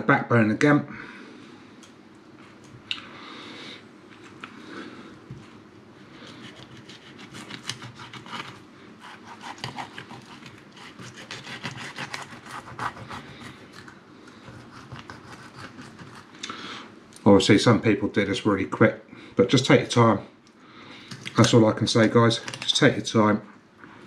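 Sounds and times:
knife scraping fish bones: 0:06.3 - 0:16.3.

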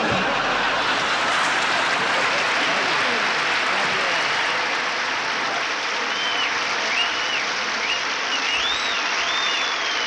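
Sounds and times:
large audience applauding: 0:00.0 - 0:10.0.

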